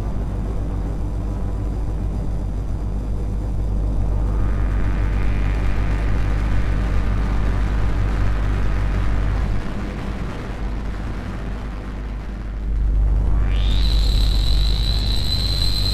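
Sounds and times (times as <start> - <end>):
rumbling noise drone: 0.0 - 15.9
faint gliding tone: 12.8 - 15.9.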